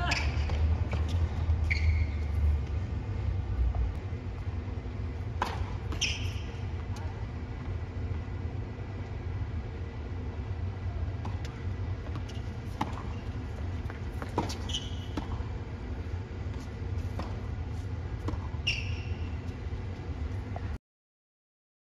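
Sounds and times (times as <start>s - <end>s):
ball bouncing on court: 0.0s - 2.3s, 5.4s - 7.1s, 11.2s - 15.5s, 16.6s - 17.5s, 18.2s - 19.2s
shoes squeaking on court: 0.0s - 2.8s, 5.4s - 7.2s, 11.2s - 20.8s
steady low rumble: 0.4s - 14.4s, 15.2s - 18.6s
tennis ball strikes: 5.3s - 6.4s, 11.2s - 13.1s.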